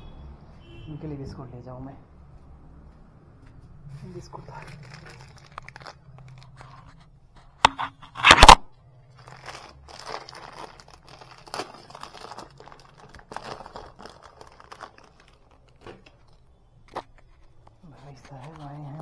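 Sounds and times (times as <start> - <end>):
plastic bag crinkling: 4.0 - 7.2, 8.0 - 19.0.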